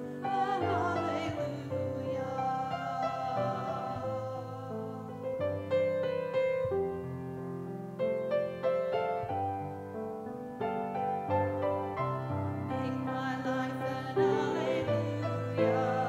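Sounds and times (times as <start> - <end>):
grand piano playing chords: 0.0 - 16.0.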